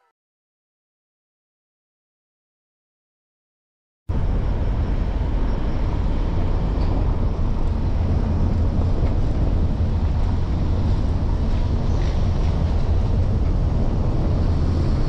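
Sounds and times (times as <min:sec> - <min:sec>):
vehicle rumbling on road: 0:04.1 - 0:15.0.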